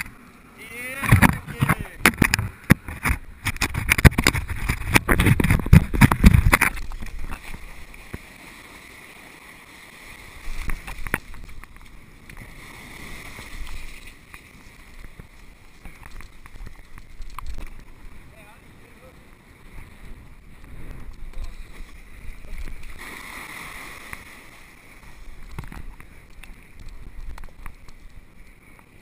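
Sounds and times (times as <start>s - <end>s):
shallow surf washing: 0.0s - 29.0s
wind buffeting microphone: 1.0s - 7.9s, 14.8s - 23.1s.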